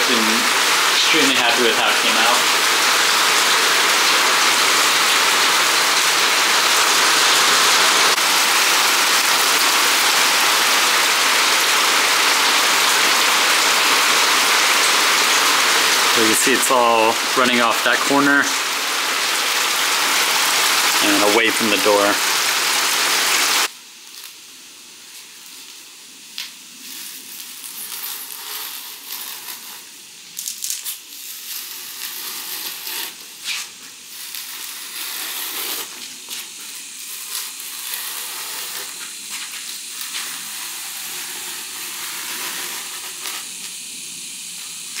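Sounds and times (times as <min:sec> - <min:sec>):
steady hiss: 0:00.0 - 0:45.0
blade scraping foam board: 0:26.9 - 0:29.9, 0:31.5 - 0:43.7.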